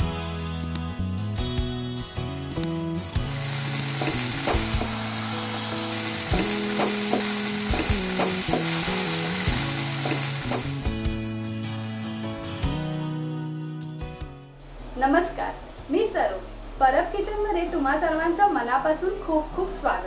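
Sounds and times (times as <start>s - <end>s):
background music: 0.0s - 18.7s
oil sizzling in frying pan: 3.2s - 11.0s.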